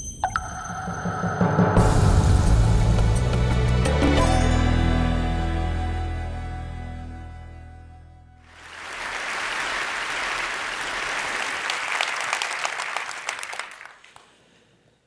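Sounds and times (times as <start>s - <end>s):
audience applauding: 8.5s - 14.3s.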